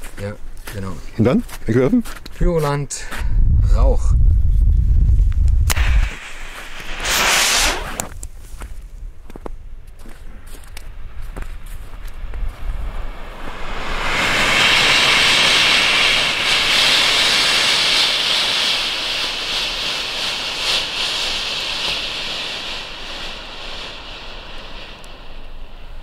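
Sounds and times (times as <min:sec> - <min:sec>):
smoke cartridge hissing: 0:05.6 - 0:08.6, 0:10.5 - 0:26.0.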